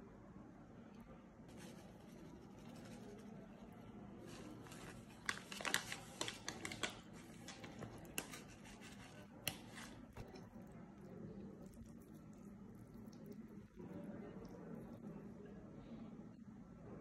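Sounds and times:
plastic bag crinkling: 0:04.5 - 0:10.3.

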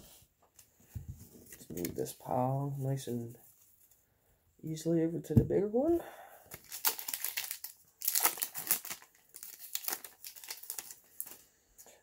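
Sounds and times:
cards rustling by hand: 0:00.6 - 0:02.9, 0:06.5 - 0:11.5.

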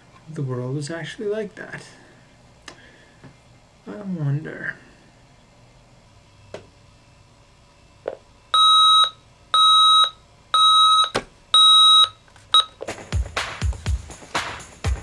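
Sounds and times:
electronic alarm beeping: 0:08.5 - 0:12.8
upbeat music with heavy beat: 0:12.8 - 0:15.0.

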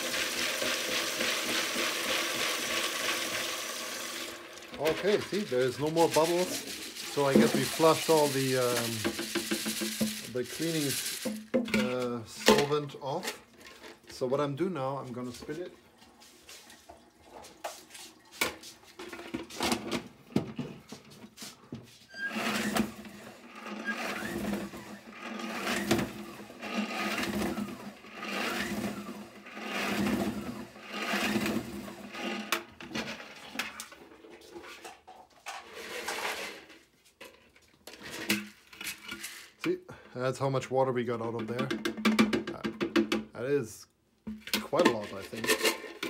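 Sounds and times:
salad spinner whirring: 0:00.0 - 0:11.4, 0:22.2 - 0:32.6.

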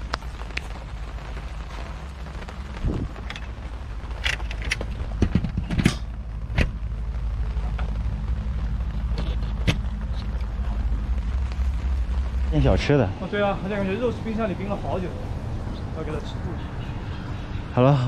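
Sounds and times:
low steady rumble: 0:00.0 - 0:18.0
scattered clicks and knocks: 0:04.2 - 0:06.8, 0:09.1 - 0:10.5.

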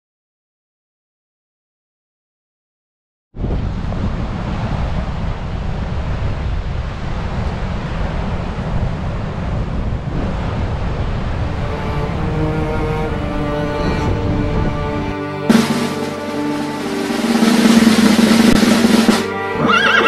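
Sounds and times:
wind buffeting microphone: 0:03.4 - 0:15.2
surf breaking on rocks: 0:15.5 - 0:19.3.

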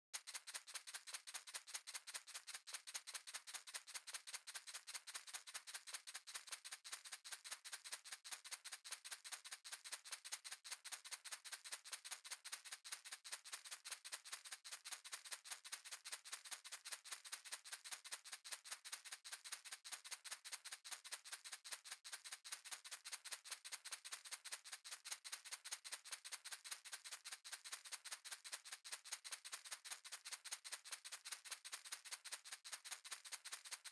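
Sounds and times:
shaker shaken rhythmically: 0:00.2 - 0:33.9.

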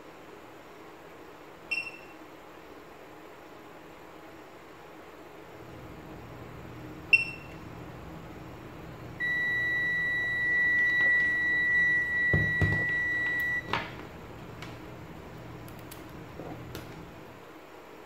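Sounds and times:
long high electronic beep: 0:09.2 - 0:13.7
short electronic beep: 0:09.2 - 0:13.7.

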